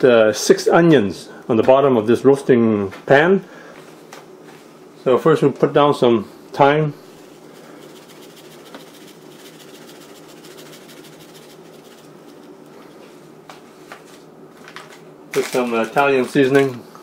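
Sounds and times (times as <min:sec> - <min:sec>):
low steady hum: 0:00.0 - 0:17.0
dried herbs crinkling from plastic bag: 0:14.6 - 0:16.0.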